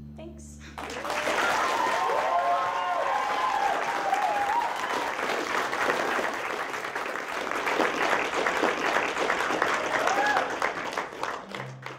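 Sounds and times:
audience applauding: 0:00.8 - 0:11.9.

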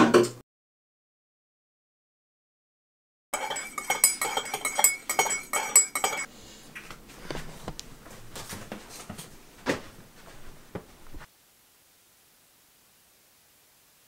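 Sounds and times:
teaspoon clinking in ceramic mug: 0:03.4 - 0:06.3.

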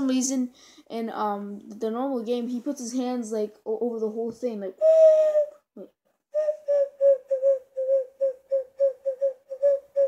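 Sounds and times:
ocarina notes: 0:04.8 - 0:10.0.

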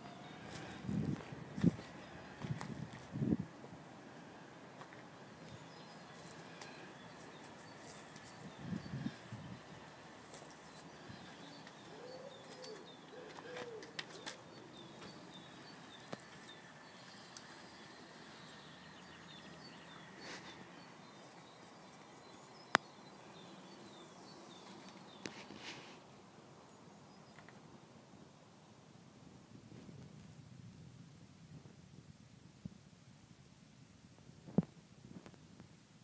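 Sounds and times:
small birds chirping: 0:04.4 - 0:26.0.

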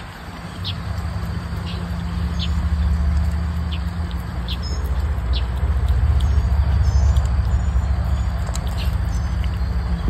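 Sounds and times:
low steady rumble: 0:00.0 - 0:10.0.

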